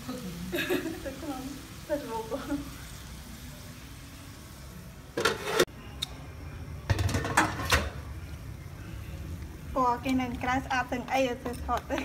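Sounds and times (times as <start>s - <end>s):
wok lid clanking: 5.2s - 5.7s.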